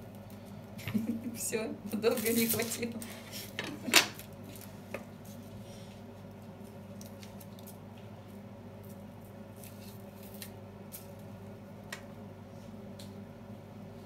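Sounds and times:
onion skin crackling: 1.8s - 12.0s.

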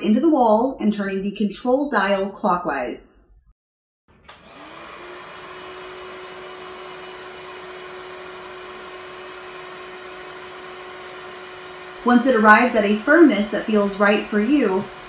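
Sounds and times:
electric air pump whirring: 4.1s - 15.0s.

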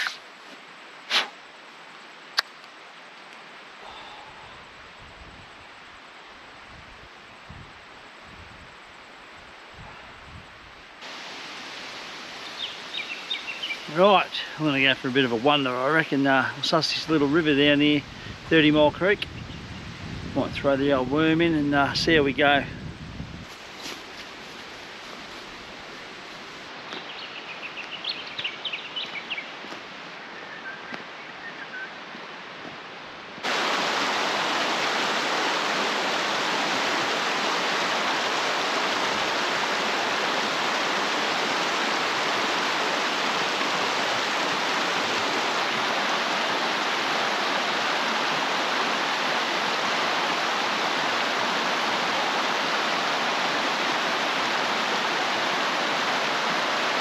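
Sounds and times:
creek rushing over rocks: 11.0s - 19.2s, 33.4s - 57.0s.

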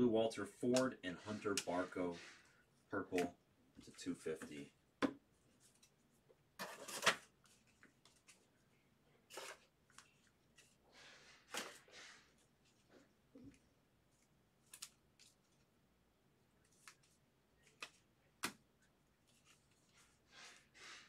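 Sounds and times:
cards rustling and sliding: 0.7s - 2.5s, 9.3s - 13.6s, 14.2s - 15.7s, 16.6s - 21.0s.

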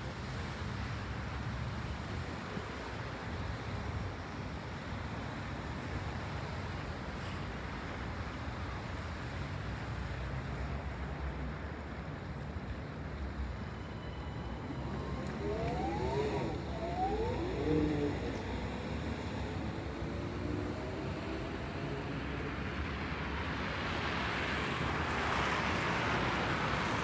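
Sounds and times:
city street traffic rumble: 0.0s - 27.0s
vehicle engine accelerating: 13.5s - 27.0s.

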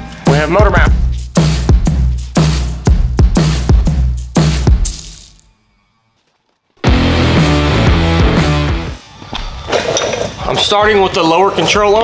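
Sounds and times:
electronic music with heavy beat: 0.1s - 5.4s, 6.8s - 9.0s
deep sliding bass notes: 6.8s - 9.0s.

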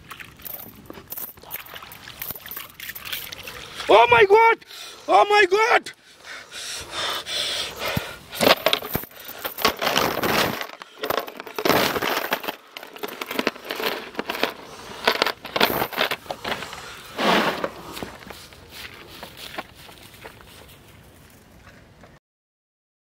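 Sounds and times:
metal chain rattling: 0.4s - 3.5s, 8.4s - 16.8s.

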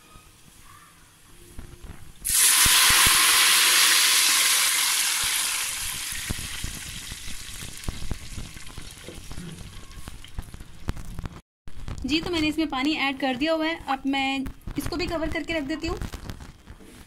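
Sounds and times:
water sizzling in hot oil: 2.2s - 11.3s
oil crackling pops: 2.2s - 12.1s.

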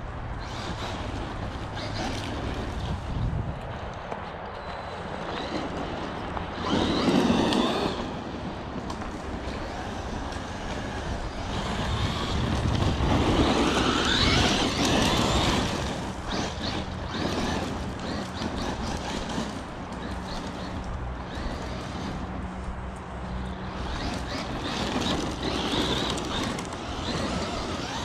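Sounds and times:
tyres crunching on dirt: 0.4s - 28.0s
electric motor whining: 5.2s - 8.6s, 9.4s - 28.0s.

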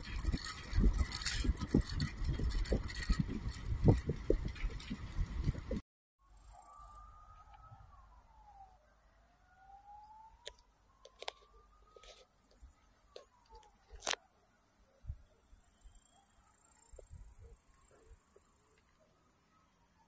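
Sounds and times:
faint wailing siren: 6.2s - 14.2s.

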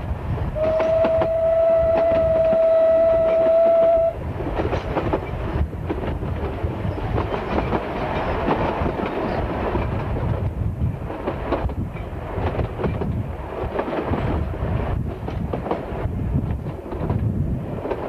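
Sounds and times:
steam whistle: 0.6s - 4.2s
train wheels clacking on rail joints: 0.6s - 18.0s.

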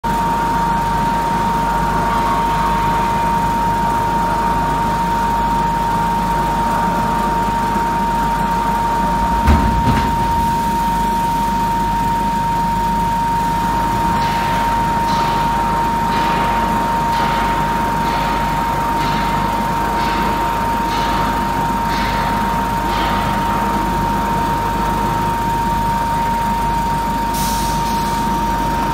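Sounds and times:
conveyor mechanical hum and whine: 0.0s - 28.9s
log knocking onto conveyor: 9.2s - 11.3s.

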